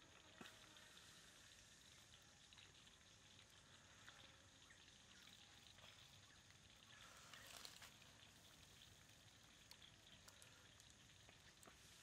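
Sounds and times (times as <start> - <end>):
small ticks: 0.0 - 12.0
mussels sizzling over charcoal: 7.1 - 12.0.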